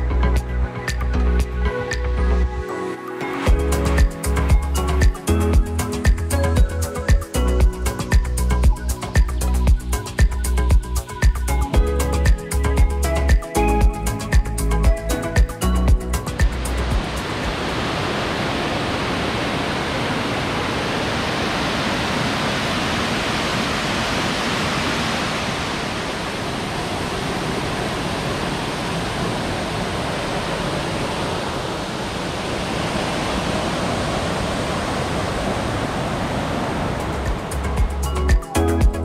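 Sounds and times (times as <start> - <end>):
waterfall crashing into pool: 16.9 - 37.6.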